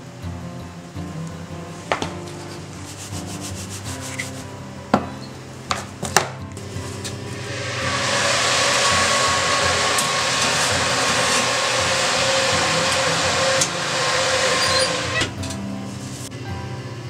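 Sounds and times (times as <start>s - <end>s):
oven fan rushing air: 6.6s - 17.0s.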